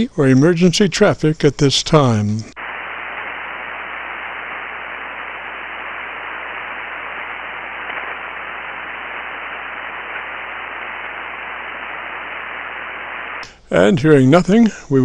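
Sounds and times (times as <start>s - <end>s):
radio receiver static hiss: 2.0s - 13.6s.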